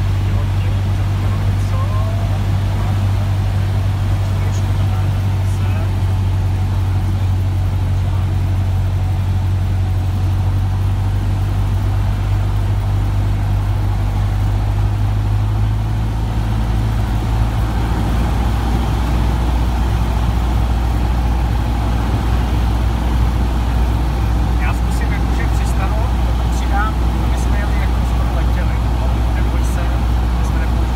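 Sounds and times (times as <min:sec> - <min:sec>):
light aircraft engine drone: 0:00.0 - 0:30.9.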